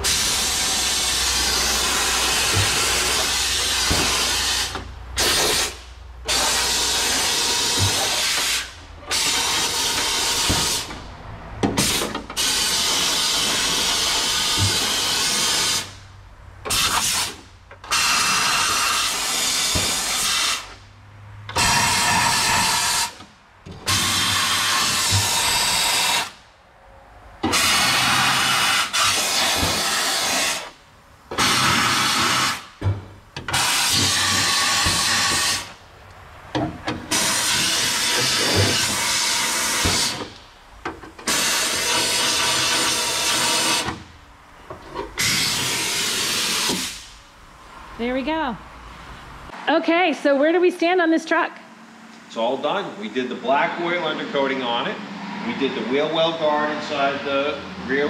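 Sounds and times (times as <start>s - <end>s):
spray wand rushing spray: 23.9s - 26.4s, 27.5s - 32.7s, 33.5s - 35.8s, 45.2s - 47.1s.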